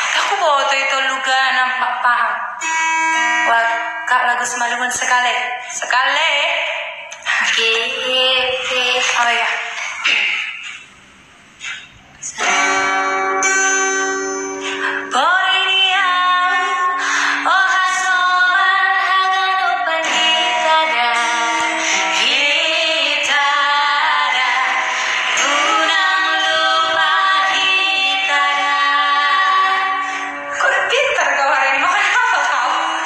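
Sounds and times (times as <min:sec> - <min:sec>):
acoustic guitar: 0:02.6 - 0:04.5, 0:07.1 - 0:33.0
women singing: 0:07.2 - 0:09.6, 0:14.8 - 0:33.0.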